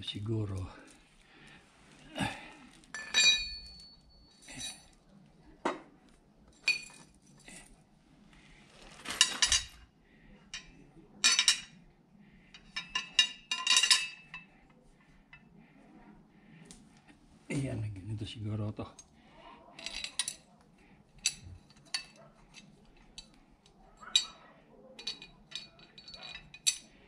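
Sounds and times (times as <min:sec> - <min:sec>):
metal parts clinking: 0:03.0 - 0:05.0, 0:06.6 - 0:07.2, 0:09.0 - 0:09.8, 0:10.5 - 0:11.7, 0:12.6 - 0:14.5, 0:19.8 - 0:20.4, 0:21.2 - 0:23.3, 0:24.0 - 0:24.4, 0:25.0 - 0:27.0.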